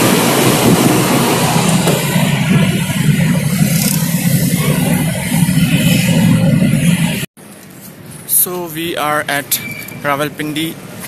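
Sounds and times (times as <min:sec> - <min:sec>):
loud rushing noise: 0:00.0 - 0:07.3
car engine and road hum: 0:00.0 - 0:11.0.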